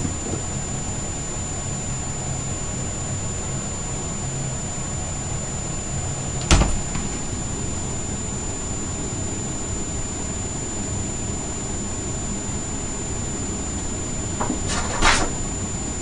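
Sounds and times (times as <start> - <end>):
thin high whine: 13.7 - 16.0
small knock: 14.4 - 15.4.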